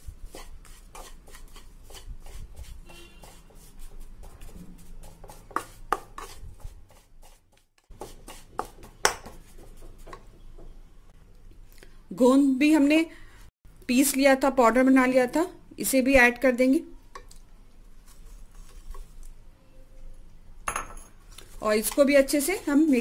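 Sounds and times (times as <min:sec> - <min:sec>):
spatula scraping a pan: 0:00.0 - 0:04.2, 0:04.8 - 0:10.2.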